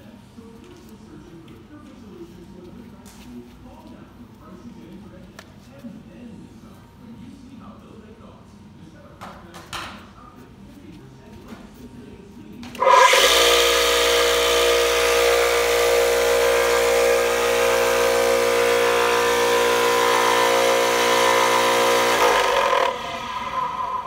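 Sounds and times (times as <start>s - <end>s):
floor sander motor humming: 12.8s - 24.0s.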